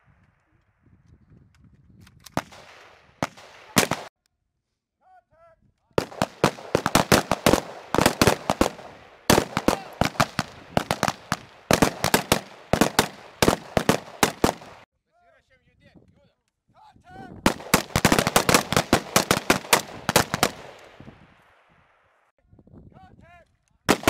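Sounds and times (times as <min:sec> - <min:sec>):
assault rifle shots: 0:02.4 - 0:04.1, 0:06.0 - 0:14.9, 0:17.5 - 0:21.0.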